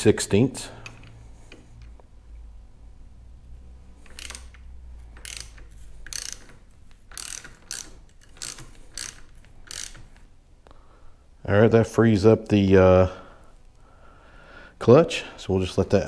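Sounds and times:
hand ratchet clicking: 0:03.9 - 0:10.3.

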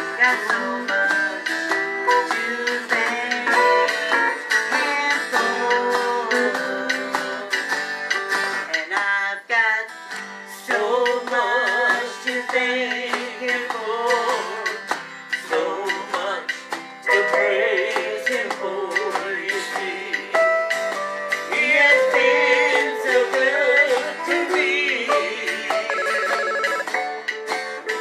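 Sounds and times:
woman singing into microphone: 0:00.0 - 0:07.6, 0:10.7 - 0:14.6, 0:17.1 - 0:20.4, 0:21.5 - 0:26.2
man singing along: 0:00.0 - 0:07.8, 0:08.7 - 0:20.6, 0:21.4 - 0:26.9
acoustic guitar strumming: 0:00.0 - 0:28.0.

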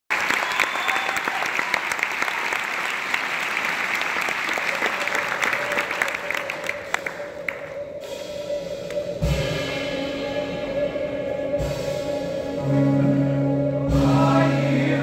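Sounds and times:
audience applauding: 0:00.1 - 0:07.8.

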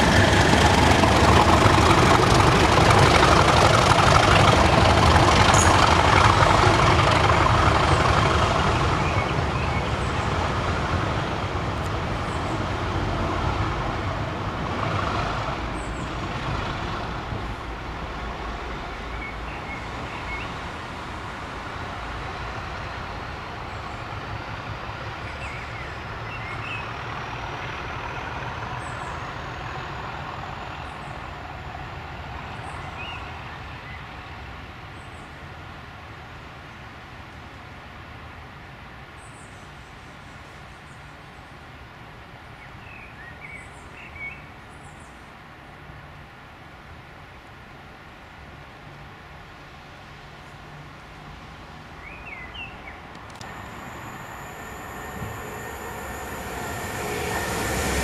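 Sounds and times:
train passing: 0:00.0 - 0:34.9, 0:52.9 - 0:58.0
faint whine: 0:53.2 - 0:58.0.

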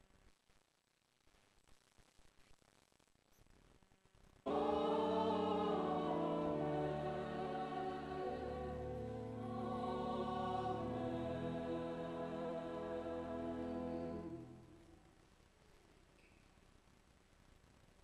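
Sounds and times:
choir singing sustained chords: 0:04.5 - 0:14.9.

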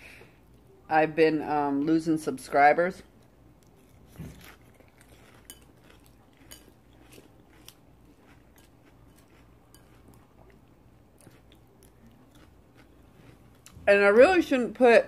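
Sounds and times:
chewing: 0:03.2 - 0:13.8.

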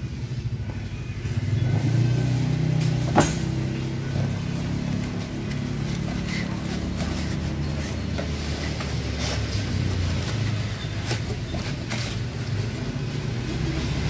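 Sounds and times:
cardboard box and foam handled: 0:03.1 - 0:14.0.

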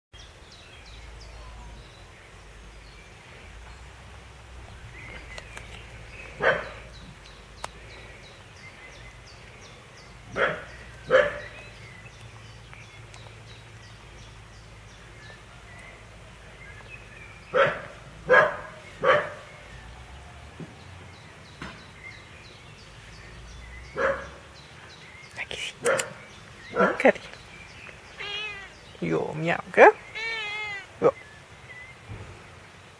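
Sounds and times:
short animal calls: 0:28.2 - 0:28.8, 0:30.1 - 0:31.2.

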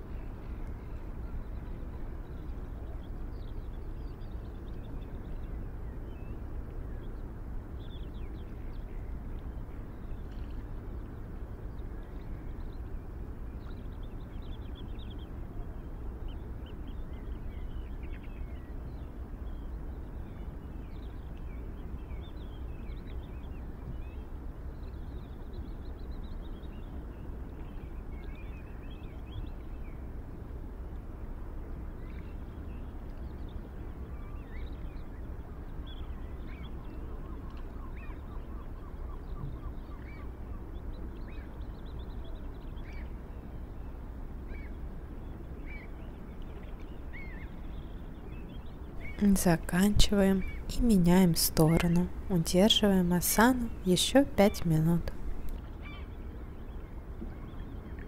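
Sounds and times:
low outdoor rumble: 0:00.0 - 0:58.0
small birds chirping: 0:45.6 - 0:58.0.

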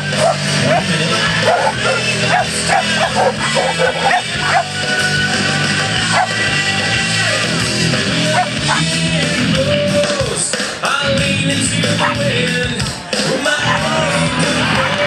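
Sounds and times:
music: 0:00.0 - 0:15.0
dog barking and yipping: 0:00.1 - 0:04.8, 0:06.0 - 0:06.4, 0:08.3 - 0:08.8.

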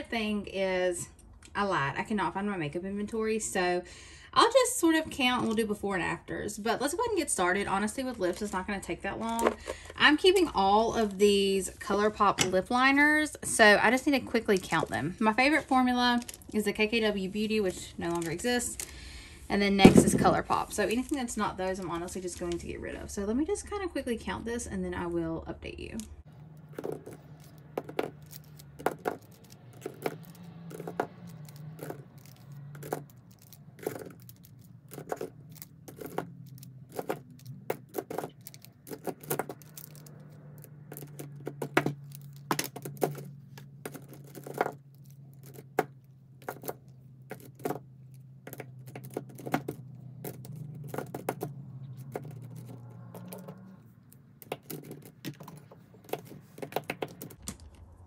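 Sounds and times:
pencils clacking together: 0:26.4 - 0:57.6.

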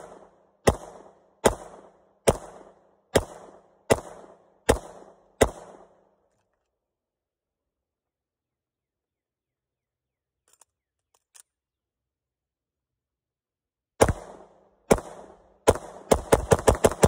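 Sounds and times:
pistol shots: 0:00.0 - 0:06.1, 0:14.0 - 0:17.0.

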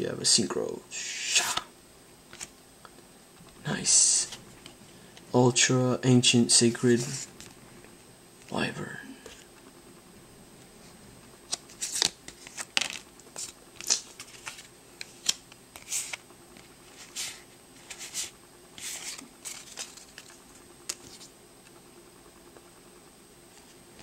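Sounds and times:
cards flicking: 0:11.5 - 0:21.7.

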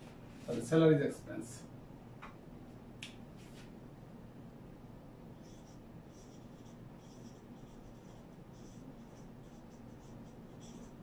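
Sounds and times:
marker squeaking on whiteboard: 0:05.4 - 0:11.0.

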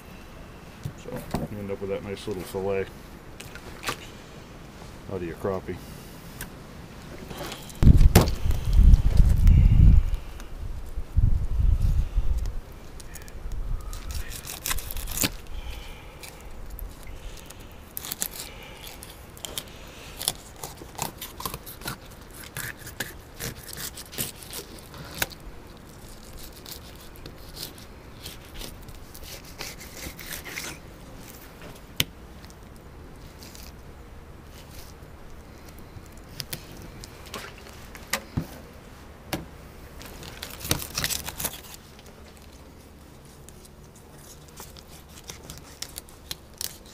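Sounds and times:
knife scraping fish scales: 0:17.3 - 0:25.3, 0:26.0 - 0:30.8.

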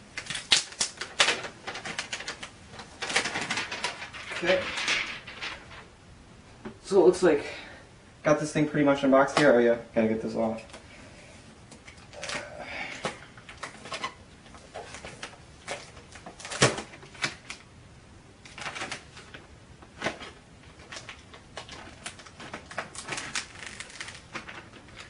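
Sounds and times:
plastic film crinkling: 0:00.0 - 0:05.9, 0:11.8 - 0:12.6, 0:13.4 - 0:17.7, 0:18.4 - 0:25.0
plastic film snap: 0:00.1 - 0:05.3, 0:14.8 - 0:17.7, 0:18.4 - 0:25.0.

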